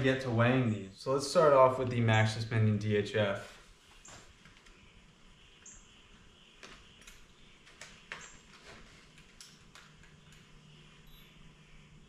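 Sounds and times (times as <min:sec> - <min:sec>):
light rustling of packaging: 0:06.6 - 0:10.5.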